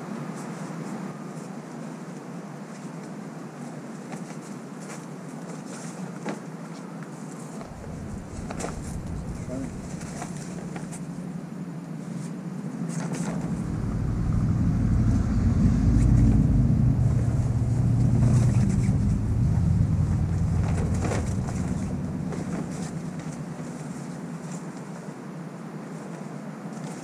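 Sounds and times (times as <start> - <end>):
passing vehicle engine rumble: 7.6 - 11.6, 12.7 - 24.6.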